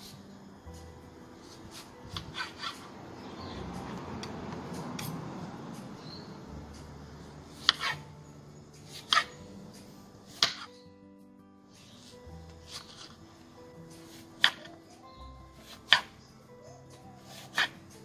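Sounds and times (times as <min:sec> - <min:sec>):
knife sawing through tomato: 0:07.6 - 0:08.0, 0:17.2 - 0:17.8
knife tapping: 0:07.6 - 0:08.0, 0:14.4 - 0:14.8, 0:15.6 - 0:16.2.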